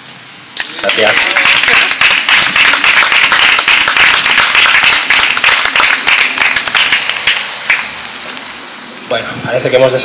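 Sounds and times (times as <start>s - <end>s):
people applauding: 0.6s - 8.1s.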